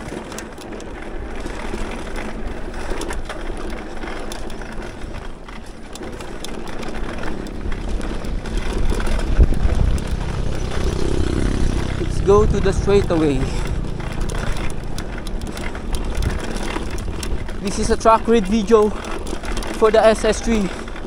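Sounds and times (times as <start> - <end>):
bike rattling and clicking: 0.0 - 21.0
bike tyres rolling on dirt: 0.0 - 21.0
low rumble: 7.7 - 19.8.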